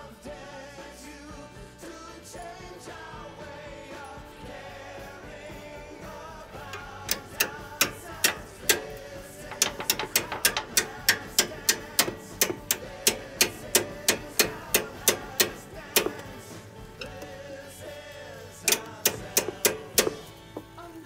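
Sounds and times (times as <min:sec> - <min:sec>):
hammer banging on steel bolt: 0:06.6 - 0:17.2, 0:18.7 - 0:20.8.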